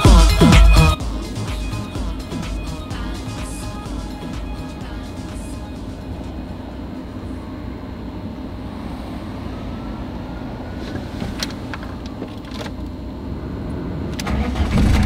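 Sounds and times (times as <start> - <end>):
car engine low rumble: 0.0 - 15.0.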